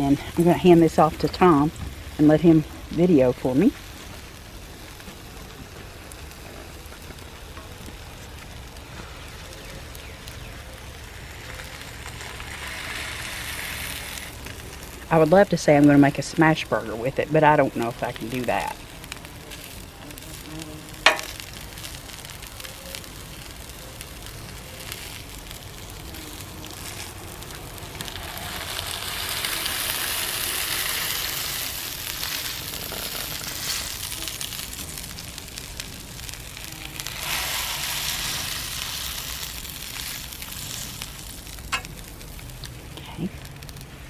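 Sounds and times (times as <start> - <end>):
meat sizzling on a griddle: 0.0 - 44.0.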